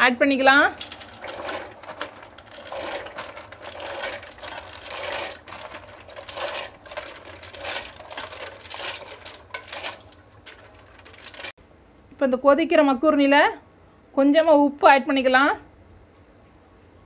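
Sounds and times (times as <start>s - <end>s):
dry pasta rattling into water: 0.0s - 11.6s.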